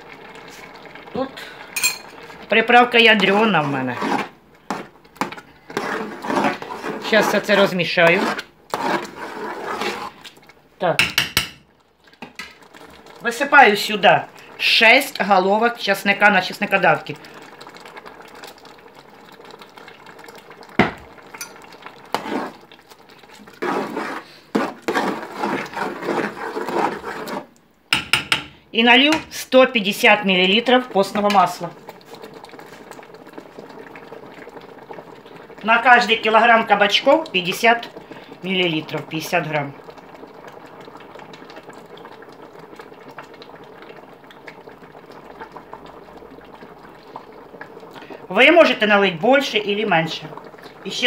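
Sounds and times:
thick sauce bubbling in a pot: 0.0s - 51.0s
spoon scraping a metal pot: 3.2s - 10.2s, 21.4s - 22.6s, 23.6s - 28.4s.

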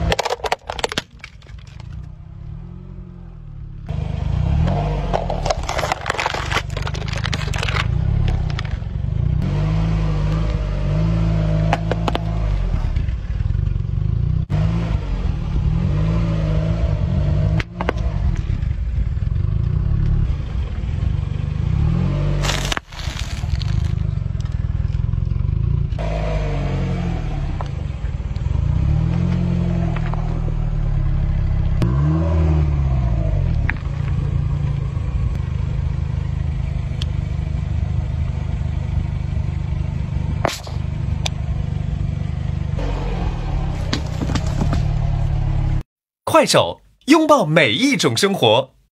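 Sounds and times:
car engine low rumble: 0.0s - 45.9s
tyre crushing objects crackling: 5.1s - 8.6s, 22.4s - 24.1s.

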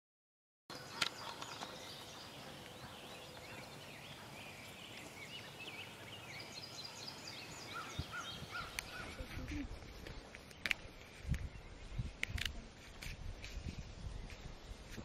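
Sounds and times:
low bird calls: 0.7s - 12.1s
birds chirping and whistling: 0.7s - 12.2s.

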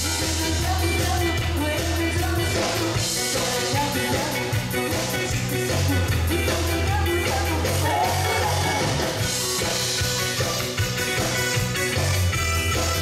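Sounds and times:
amplified singing voice: 0.0s - 9.3s
live band playing dance-pop: 0.0s - 13.0s.

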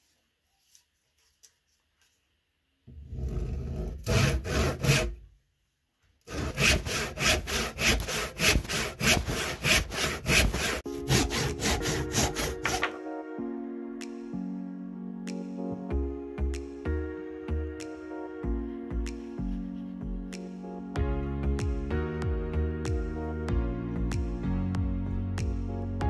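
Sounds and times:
handsaw cutting wood: 3.0s - 5.2s, 6.3s - 13.0s
soft music: 6.3s - 26.0s.

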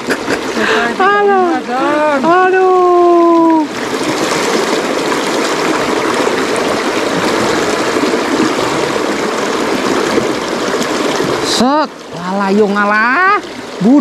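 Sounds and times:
stream running over stones: 0.0s - 14.0s.

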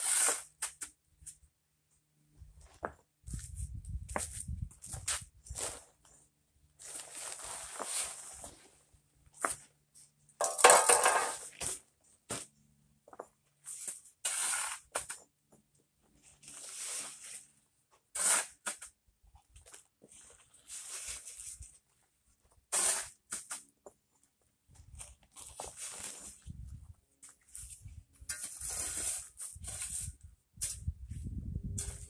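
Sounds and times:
shovel scraping crushed stone: 0.0s - 1.4s, 10.4s - 12.5s, 13.6s - 15.2s, 16.4s - 19.0s, 20.2s - 21.7s, 22.6s - 23.8s, 25.3s - 26.5s, 27.5s - 30.9s.

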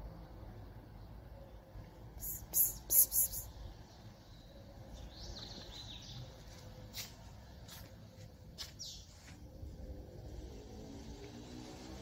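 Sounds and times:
faint bird chirps: 2.2s - 6.2s.

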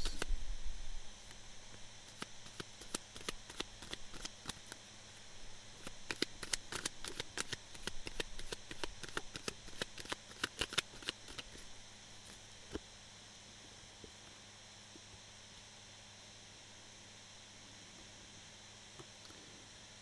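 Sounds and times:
cards being shuffled: 0.0s - 0.3s, 2.1s - 4.8s, 5.8s - 11.7s.

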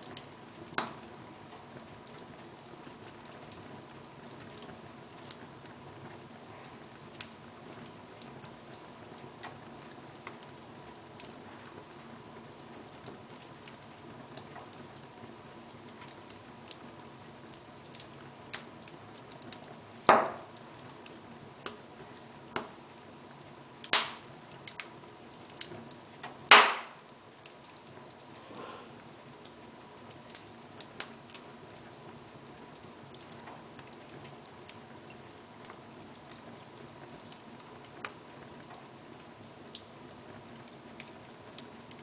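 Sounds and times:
wood fire crackling: 0.0s - 42.0s
loud pops from fire: 0.2s - 1.1s, 19.4s - 20.7s, 22.5s - 22.8s, 23.8s - 27.2s.

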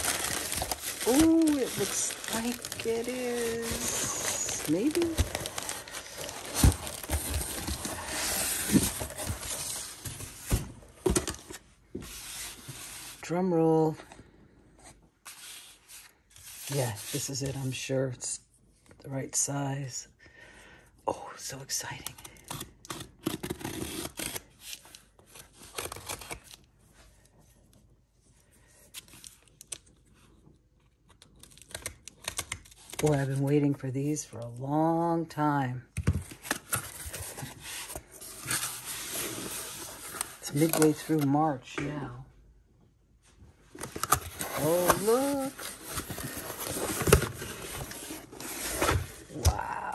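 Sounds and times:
cardboard rustling and scraping: 0.0s - 13.2s, 36.3s - 41.4s, 43.7s - 49.4s.

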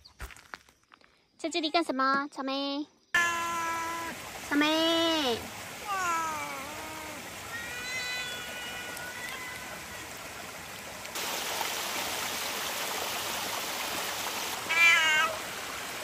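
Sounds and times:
cat meowing: 3.2s - 4.1s, 5.9s - 9.6s, 14.7s - 15.4s
small waterfall rushing: 3.2s - 16.0s.

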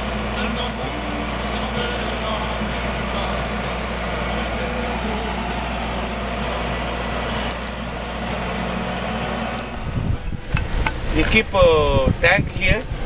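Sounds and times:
tractor diesel engine running: 0.0s - 13.0s.

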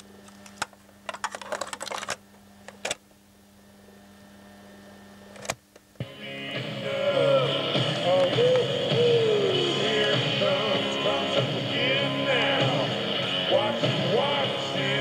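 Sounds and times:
low steady hum: 0.0s - 15.0s
cassette clicking and rattling: 0.2s - 3.0s, 5.4s - 5.9s.

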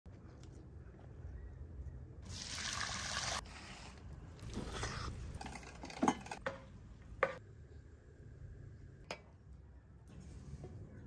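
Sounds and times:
metal cookware clinking and scraping: 4.6s - 7.4s.

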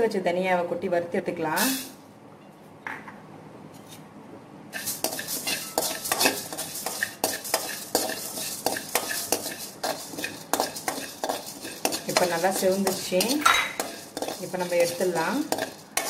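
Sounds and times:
metal spoon scraping pan: 4.8s - 16.0s
seeds rattling: 4.8s - 16.0s.

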